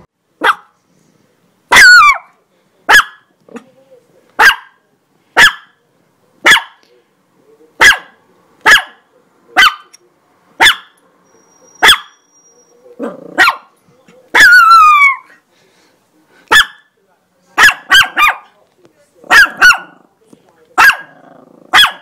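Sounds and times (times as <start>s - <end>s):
dog barking: 0.4s - 0.8s, 1.7s - 2.3s, 2.9s - 3.3s, 4.4s - 4.8s, 5.4s - 5.8s, 6.4s - 6.8s, 7.8s - 9.0s, 9.6s - 9.9s, 10.6s - 11.0s, 11.8s - 12.2s, 13.0s - 13.7s, 14.3s - 15.3s, 16.5s - 17.0s, 17.6s - 18.6s, 19.3s - 20.0s, 20.8s - 22.0s
dog growling: 12.9s - 13.5s, 19.2s - 20.2s, 21.0s - 22.0s.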